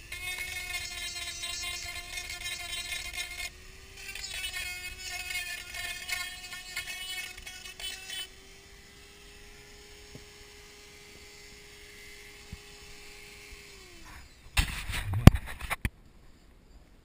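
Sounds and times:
rotary tool motor humming: 0.0s - 15.8s
rustling and knocks: 14.6s - 15.9s.

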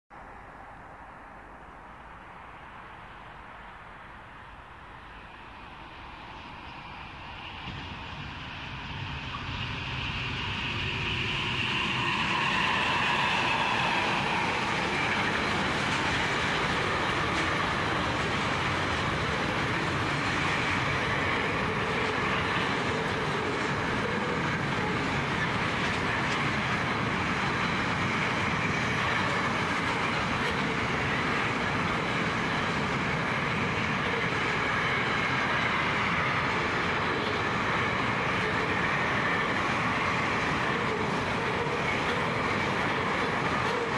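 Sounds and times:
diesel locomotive engines: 0.2s - 43.9s
train wheels clattering on rails: 7.6s - 43.9s.

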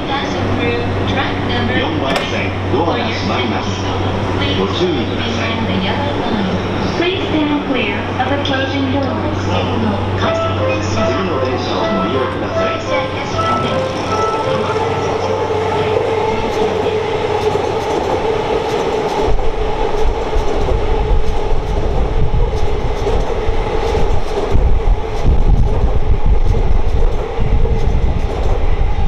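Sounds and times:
electric train whine: 0.0s - 29.0s.

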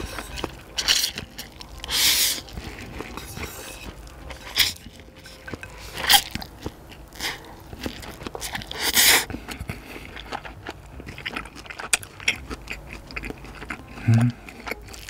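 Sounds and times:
noodle slurping: 0.0s - 10.5s
wet chewing with mouth clicks: 0.0s - 15.0s.

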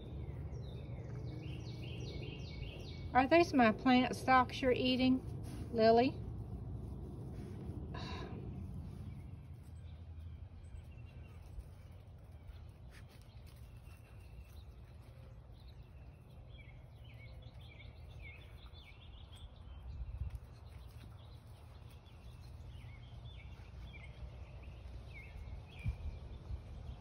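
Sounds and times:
low rumble: 0.0s - 15.1s
birds chirping: 0.0s - 27.0s.

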